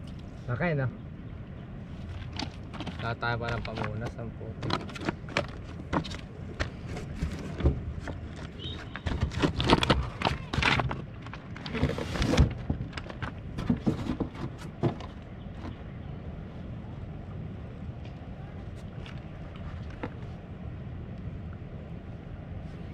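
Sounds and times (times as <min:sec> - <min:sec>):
irregular knocks and clatters: 0:02.2 - 0:15.8.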